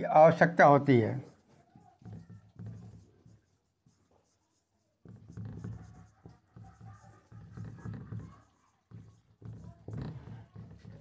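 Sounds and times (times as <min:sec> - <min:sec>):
marker writing on whiteboard: 0:00.3 - 0:11.0.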